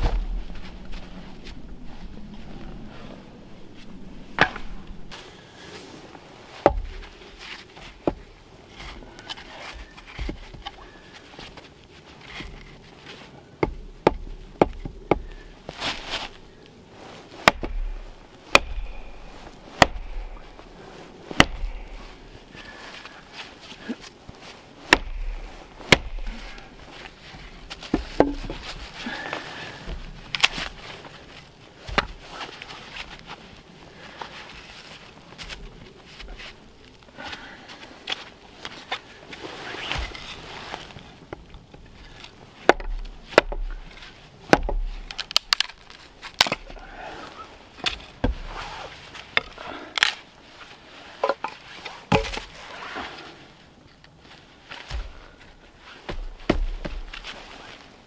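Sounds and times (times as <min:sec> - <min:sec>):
wood being chopped: 0:04.4 - 0:04.8, 0:06.6 - 0:07.1, 0:13.6 - 0:15.4, 0:17.4 - 0:20.7, 0:21.3 - 0:22.3, 0:24.9 - 0:26.8, 0:27.7 - 0:29.3, 0:31.8 - 0:32.2, 0:42.6 - 0:43.9, 0:44.5 - 0:46.8, 0:47.8 - 0:48.5, 0:52.1 - 0:52.5, 0:56.1 - 0:57.2.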